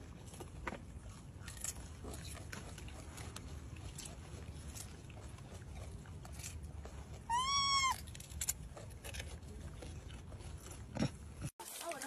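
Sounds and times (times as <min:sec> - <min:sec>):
macaque call: 0:07.3 - 0:08.0.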